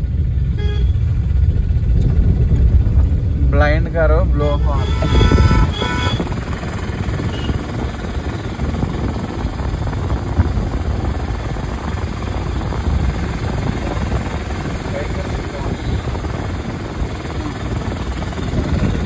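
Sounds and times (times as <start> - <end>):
car engine drone: 0.0 - 19.0
road noise: 0.0 - 19.0
car horn blasts: 0.5 - 1.0, 4.6 - 6.4, 7.3 - 7.6.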